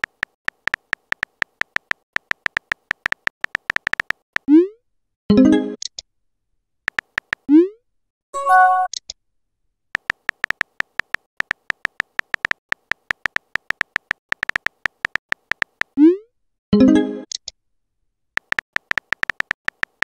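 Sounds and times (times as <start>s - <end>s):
keyboard typing clicks: 0.0s - 4.5s, 6.9s - 7.5s, 10.0s - 16.0s, 18.4s - 20.0s.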